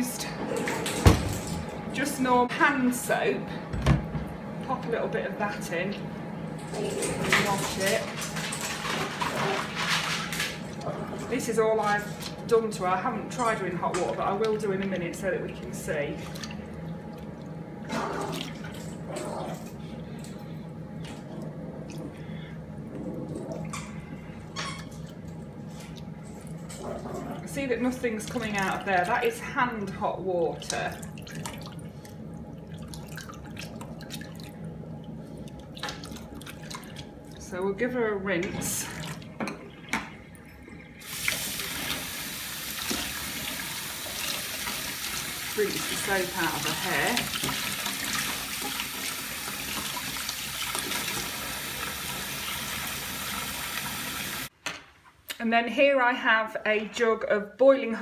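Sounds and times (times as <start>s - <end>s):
water splashing and dripping: 16.2s - 19.1s, 30.4s - 37.4s, 38.8s - 54.5s.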